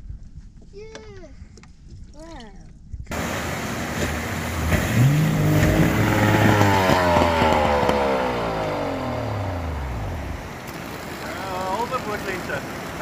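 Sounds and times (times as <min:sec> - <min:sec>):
engine revving: 0:03.1 - 0:13.0.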